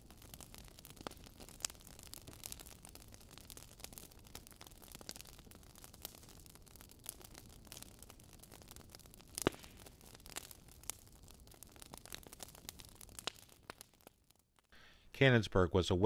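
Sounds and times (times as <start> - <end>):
crackling clicks and pops: 0.0 - 14.8
low hiss: 14.8 - 16.0.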